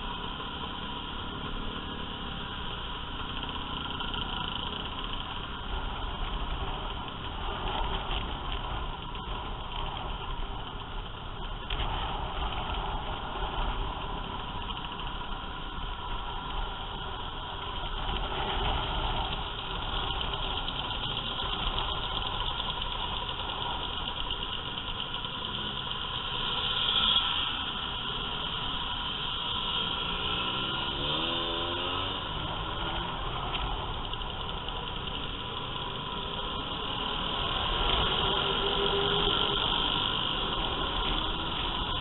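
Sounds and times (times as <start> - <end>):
road noise: 0.0 - 42.0
scooter engines running: 0.0 - 42.0
engine revving: 25.4 - 42.0.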